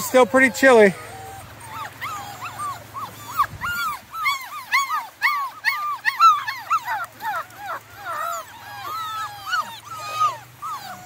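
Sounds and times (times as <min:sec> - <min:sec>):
puppies crying: 0:00.0 - 0:11.0.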